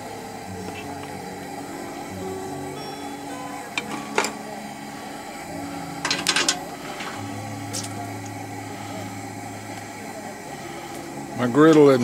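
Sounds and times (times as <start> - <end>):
metal tongs clinking on griddle: 6.0 - 7.9.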